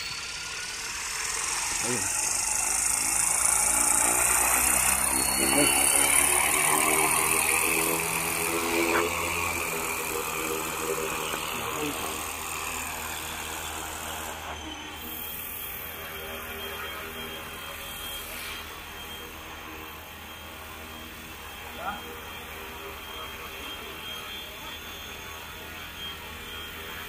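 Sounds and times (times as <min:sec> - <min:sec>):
rc helicopter rotor whirring: 0:00.0 - 0:27.0.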